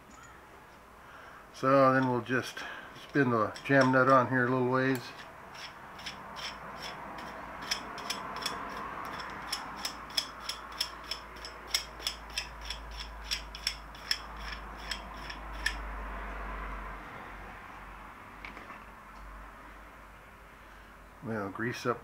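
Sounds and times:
nut clicking on threaded rod: 0:04.9 - 0:15.8.

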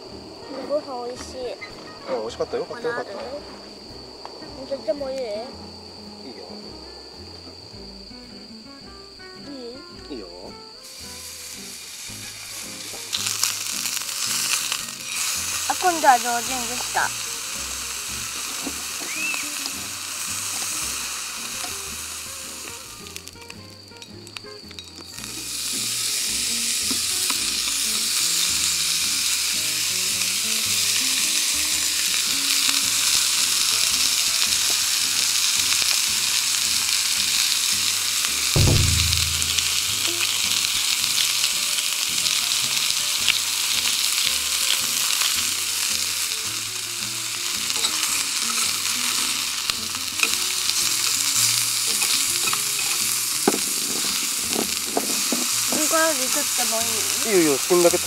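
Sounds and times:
meat sizzling in a skillet: 0:00.0 - 0:58.0
low thud: 0:38.6 - 0:40.4
tongs clicking: 0:50.2 - 0:53.1.

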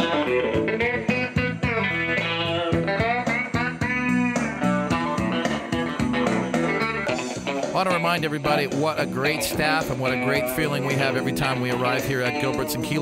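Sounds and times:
blues guitar music: 0:00.0 - 0:13.0.

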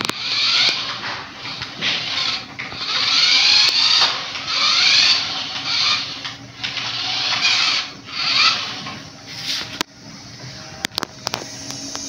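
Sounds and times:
toy car motor whirring: 0:00.0 - 0:09.0.

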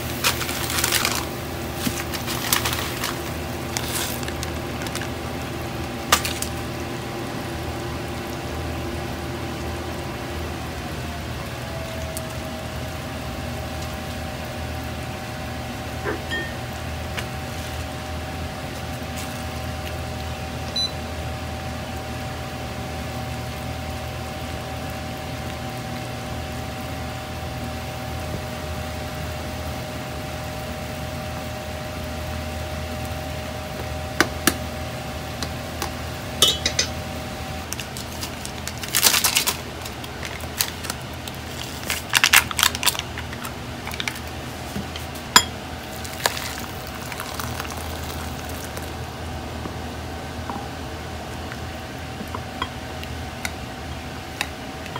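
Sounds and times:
induction cooktop humming: 0:00.0 - 0:54.9
clinks of pot and bowl: 0:36.4 - 0:37.0.

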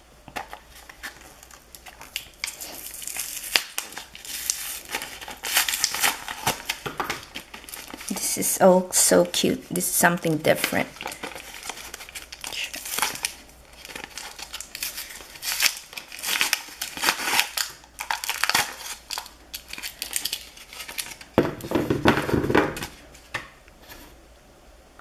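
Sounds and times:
paper bag crinkling: 0:00.4 - 0:23.3
plastic bag rustling: 0:00.4 - 0:24.2.

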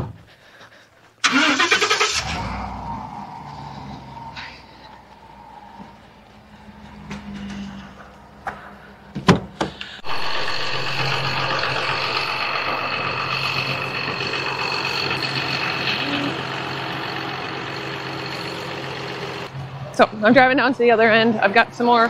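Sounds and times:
pickup truck engine running: 0:10.0 - 0:19.5.

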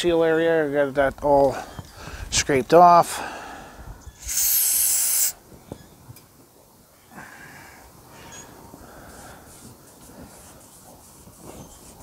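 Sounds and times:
aerosol spray hissing: 0:04.2 - 0:05.4.

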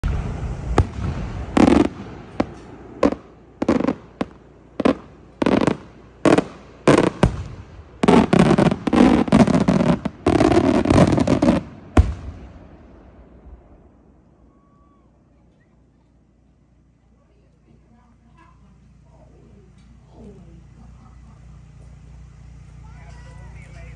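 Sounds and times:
firework shells bursting: 0:00.0 - 0:12.8
firework crackle: 0:00.0 - 0:16.0.

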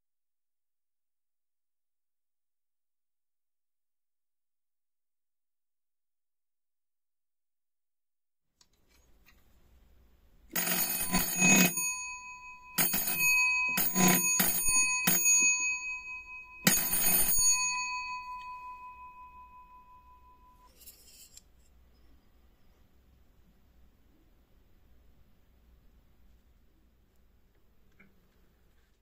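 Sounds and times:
electric doorbell rattling: 0:10.6 - 0:20.6.

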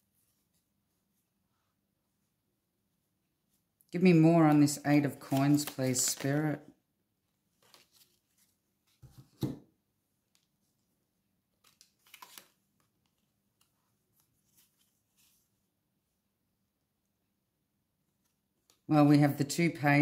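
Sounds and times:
cards rustling and slapping: 0:04.1 - 0:06.6, 0:07.5 - 0:09.6, 0:11.5 - 0:15.5.

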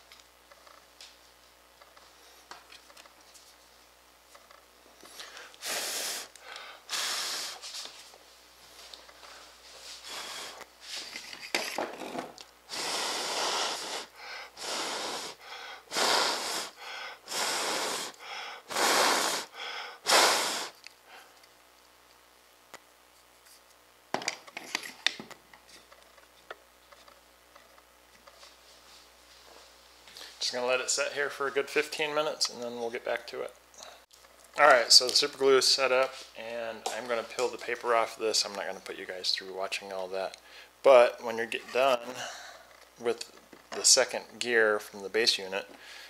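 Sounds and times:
hissing puffs of air: 0:05.1 - 0:07.9, 0:09.3 - 0:11.1, 0:12.7 - 0:21.3.

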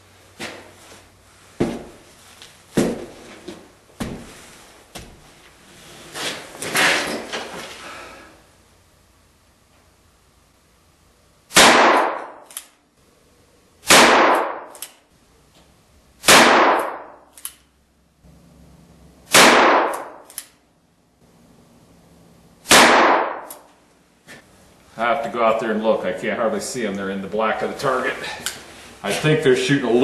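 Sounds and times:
revolver shots ringing: 0:11.5 - 0:12.4, 0:16.2 - 0:17.3, 0:19.3 - 0:20.3, 0:22.6 - 0:23.6.

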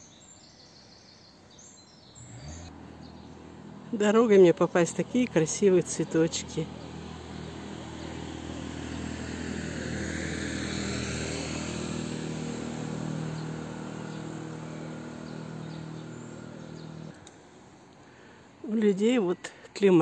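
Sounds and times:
vehicle passing: 0:02.2 - 0:17.8.

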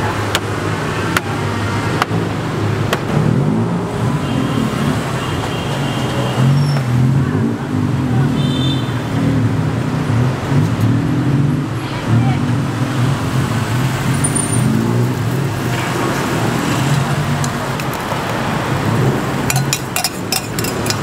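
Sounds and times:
passing vehicle engines: 0:00.0 - 0:21.0
sharp knocks: 0:02.9 - 0:03.2.

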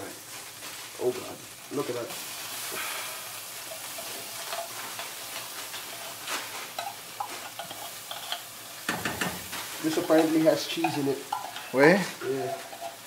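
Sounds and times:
meat sizzling in a pan: 0:00.0 - 0:13.0
spoon clicking and scraping: 0:03.7 - 0:08.8, 0:10.1 - 0:11.8, 0:12.6 - 0:13.0.

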